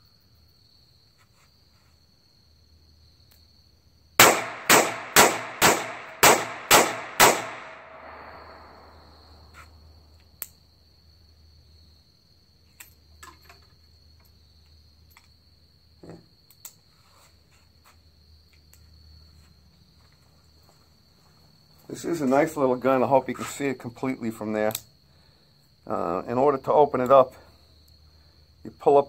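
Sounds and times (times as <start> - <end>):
crickets trilling: 0.0 - 29.0
revolver gunshots with echo: 4.2 - 9.0
faint revolver handling clicks: 10.1 - 10.6, 12.7 - 13.5, 16.5 - 16.8, 24.7 - 24.9.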